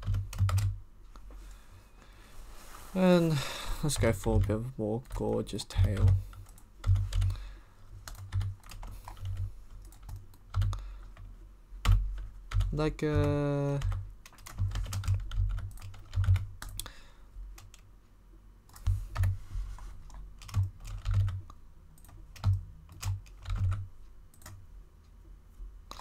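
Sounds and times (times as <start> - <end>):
computer keyboard typing: 0.0 - 0.8, 3.9 - 7.4, 8.0 - 16.9, 17.6 - 17.8, 18.7 - 19.4, 20.0 - 24.6.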